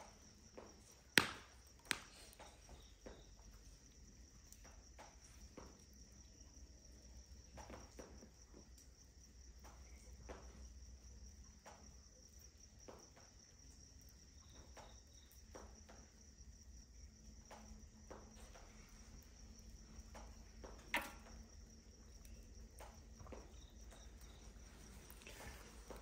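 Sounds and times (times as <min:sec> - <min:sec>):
crickets chirring: 0:00.0 - 0:26.0
logs crackling in fire: 0:17.4 - 0:26.0.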